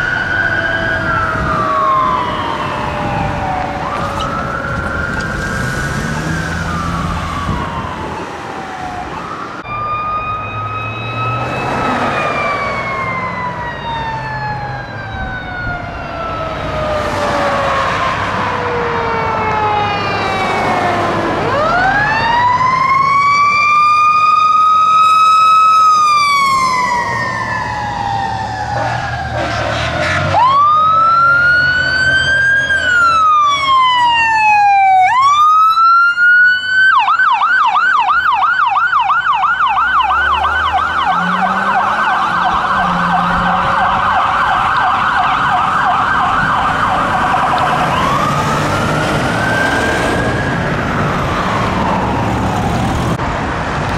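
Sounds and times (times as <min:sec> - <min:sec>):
fire engine siren wailing: 0:00.0 - 0:53.9.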